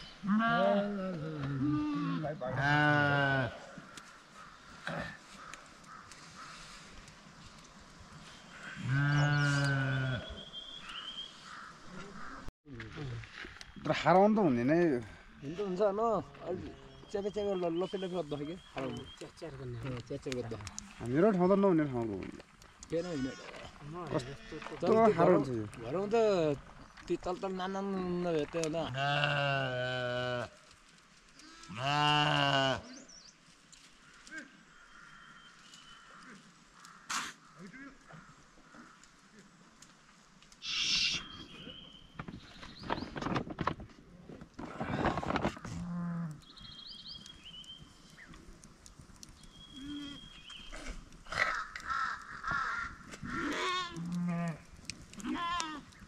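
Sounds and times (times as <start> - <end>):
sheep bleating: 0.2 - 3.7, 8.6 - 10.4, 28.8 - 30.6, 31.4 - 33.0, 53.3 - 54.6, 55.2 - 55.9.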